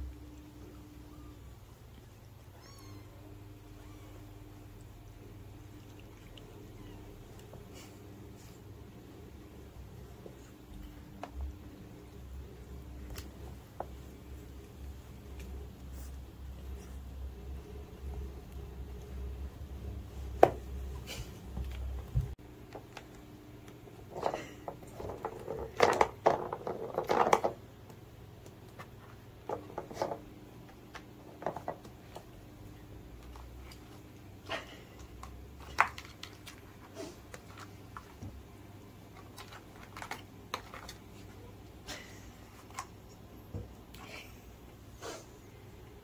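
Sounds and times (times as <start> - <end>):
ball clicking on plastic track: 24.9 - 27.6.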